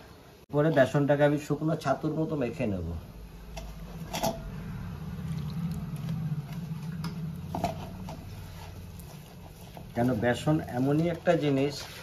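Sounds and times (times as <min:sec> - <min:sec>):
hand rubbing flour in bowl: 0:07.8 - 0:12.0.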